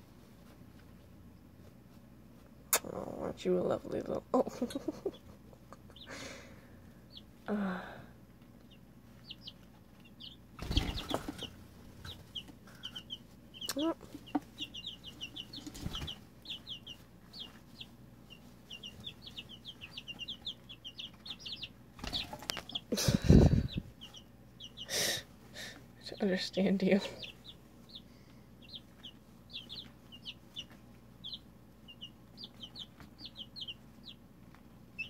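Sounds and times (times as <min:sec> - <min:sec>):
chicks peeping: 0:00.1 - 0:35.0.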